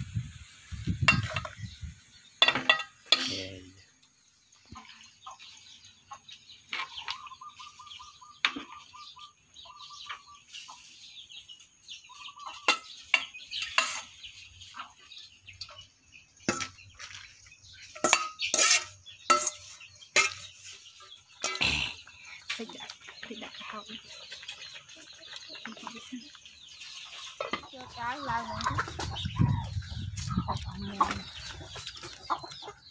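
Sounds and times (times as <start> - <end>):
metal ladle clinking on bowl and pot: 2.4 - 3.4, 17.9 - 20.5, 21.4 - 21.7.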